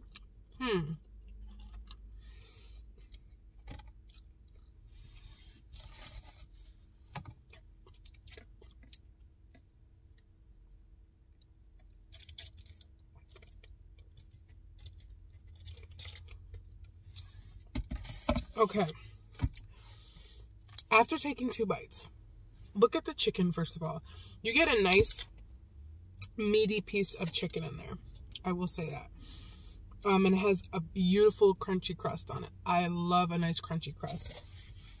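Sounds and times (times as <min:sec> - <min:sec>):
crunchy chewing: 0:01.0 - 0:05.2, 0:07.4 - 0:10.3.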